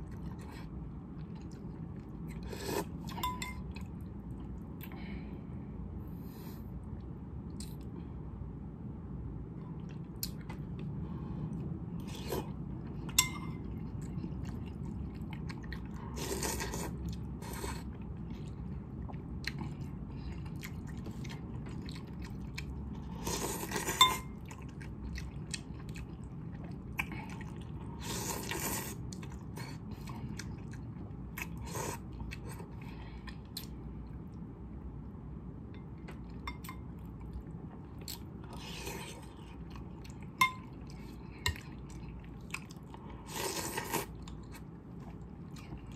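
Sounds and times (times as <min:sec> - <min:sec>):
person chewing: 0:09.6 - 0:33.8, 0:36.0 - 0:45.9.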